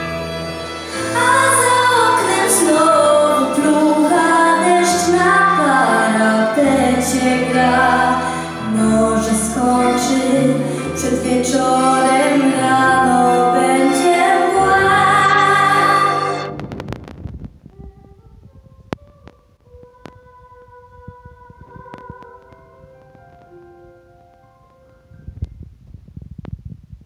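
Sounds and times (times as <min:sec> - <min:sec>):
girl singing into microphone: 0:01.1 - 0:16.3, 0:17.6 - 0:23.4.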